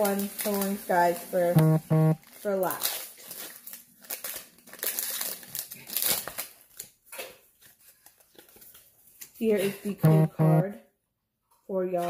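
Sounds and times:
foil wrapper crinkling: 0.0s - 1.4s, 2.2s - 9.4s.

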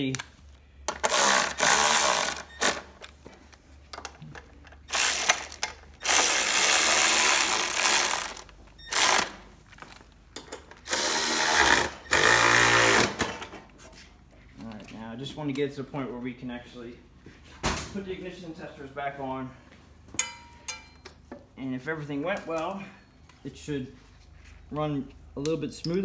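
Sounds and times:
cordless electric ratchet running: 1.0s - 2.9s, 4.9s - 9.4s, 10.9s - 13.2s.

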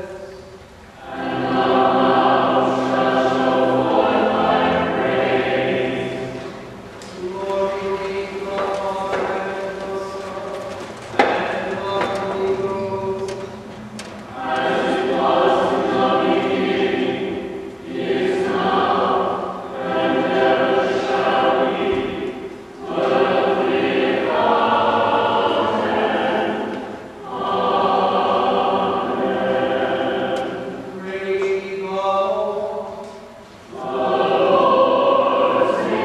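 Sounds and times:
church choir singing: 0.0s - 36.0s.

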